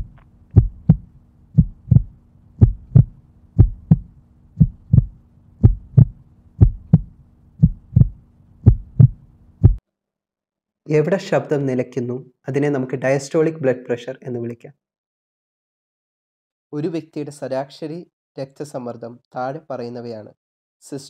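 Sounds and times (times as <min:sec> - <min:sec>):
dull pulse thumps: 0:00.0 - 0:09.8
faint steady hum: 0:00.0 - 0:09.8.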